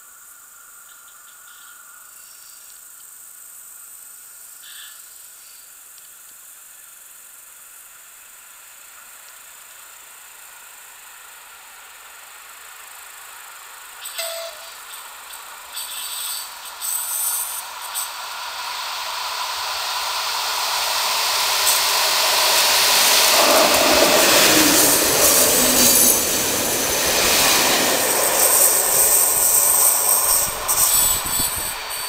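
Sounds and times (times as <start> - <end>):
diesel train passing: 12.6 - 32.0
high-pitched wheel squeal: 14.0 - 18.9, 21.6 - 32.0.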